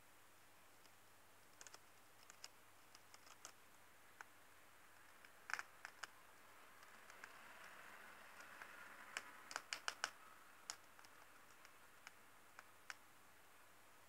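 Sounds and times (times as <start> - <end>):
hamster nibbling seeds: 0.7 - 13.1.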